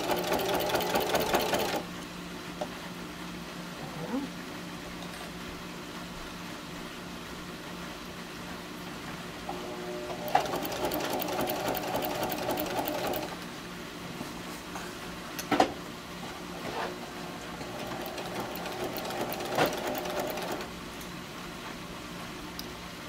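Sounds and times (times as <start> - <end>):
sewing machine stitching: 0.0 - 1.8, 10.0 - 13.4, 17.6 - 20.7.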